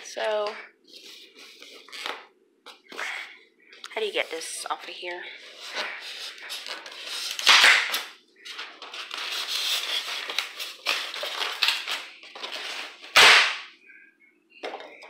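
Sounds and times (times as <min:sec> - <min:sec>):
foam cracking snaps: 0:07.4 - 0:08.1.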